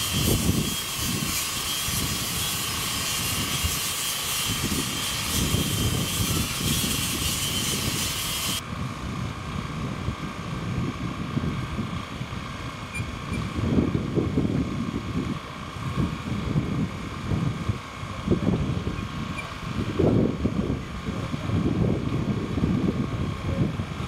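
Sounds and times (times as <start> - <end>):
electric drill boring into wood: 0.0 - 8.6
wind buffeting microphone: 0.0 - 24.0.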